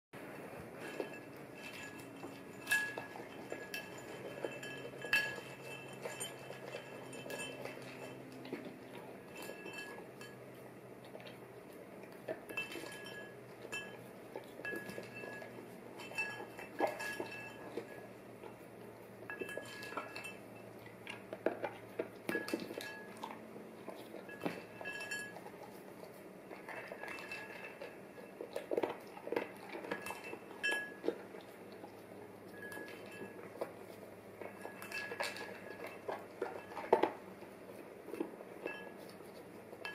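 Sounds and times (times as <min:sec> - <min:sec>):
spoon clinking on ceramic bowl: 0:00.8 - 0:08.4, 0:09.2 - 0:10.4, 0:12.3 - 0:18.1, 0:19.3 - 0:20.7, 0:22.3 - 0:23.3, 0:24.2 - 0:25.5, 0:29.8 - 0:31.1, 0:32.5 - 0:33.6, 0:34.4 - 0:37.1.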